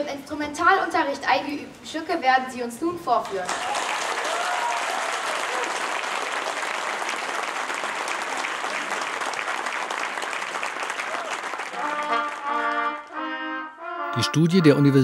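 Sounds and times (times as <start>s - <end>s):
audience applauding: 3.4s - 13.2s
children's wind band playing: 11.8s - 15.0s.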